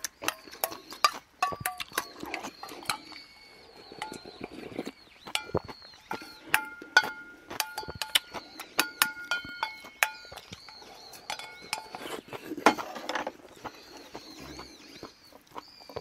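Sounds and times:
person chewing and slurping: 0.0s - 16.0s
metal bowl ringing: 6.5s - 12.0s.

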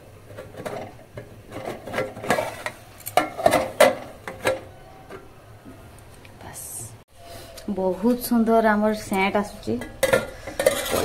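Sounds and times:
metal lid scraping on pan rim: 10.0s - 11.0s.

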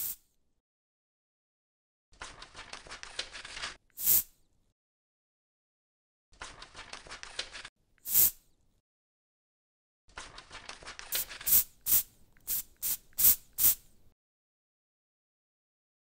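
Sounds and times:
short sharp hisses: 4.0s - 4.3s, 8.0s - 8.4s.

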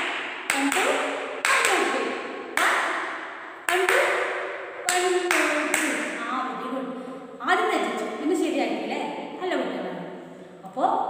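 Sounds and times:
hand claps with echo: 0.0s - 6.3s.

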